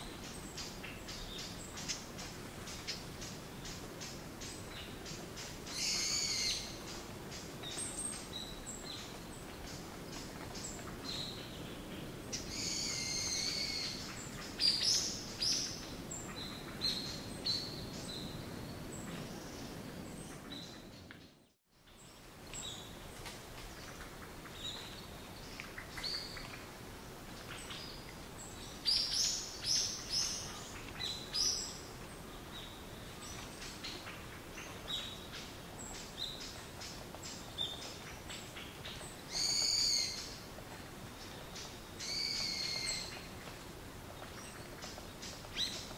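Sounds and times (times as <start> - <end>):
background hiss: 0.0 - 45.9.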